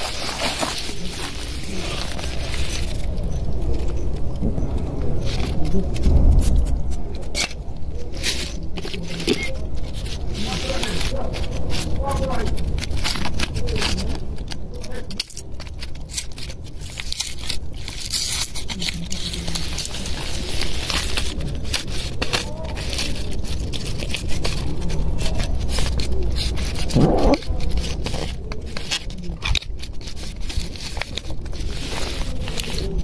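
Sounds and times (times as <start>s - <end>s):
foil tray scraped and crinkled: 0.0s - 3.1s, 7.1s - 33.0s
short rising cry: 26.9s - 27.4s.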